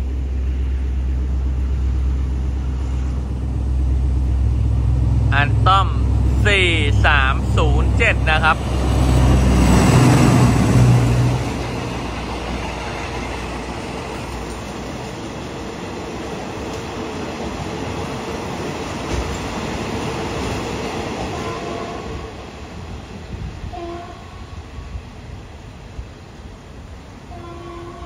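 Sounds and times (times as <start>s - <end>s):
locomotive engine: 0.0s - 22.0s
train wheels rumbling on rails: 0.0s - 28.0s.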